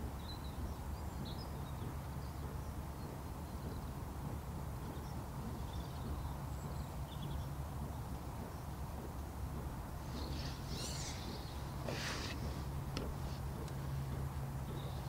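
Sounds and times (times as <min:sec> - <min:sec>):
wind on microphone: 0:00.0 - 0:15.0
faint bird chirps: 0:10.1 - 0:12.8.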